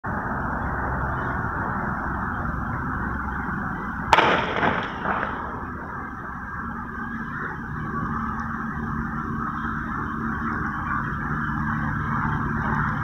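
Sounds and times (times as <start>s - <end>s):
open-air background noise: 0.0s - 13.0s
gunshot with echo: 4.1s - 6.3s.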